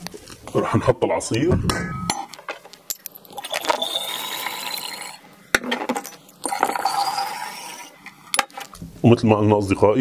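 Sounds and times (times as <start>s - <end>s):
liquid pouring into glass jar: 3.2s - 5.2s, 6.2s - 8.0s.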